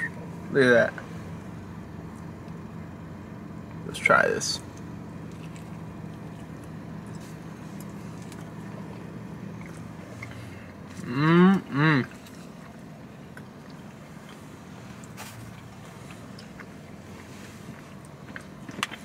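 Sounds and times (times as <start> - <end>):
steady low hum: 0.0 - 19.0
man chewing food: 4.7 - 19.0
man humming closed-mouth: 11.0 - 12.2.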